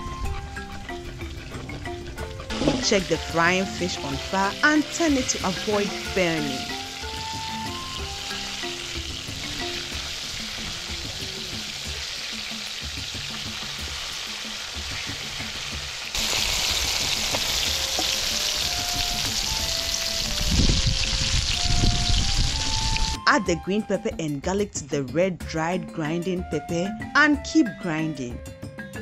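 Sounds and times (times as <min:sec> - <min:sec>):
fish sizzling in hot oil: 0:00.2 - 0:23.2
wooden spatula turning fish: 0:16.2 - 0:20.4.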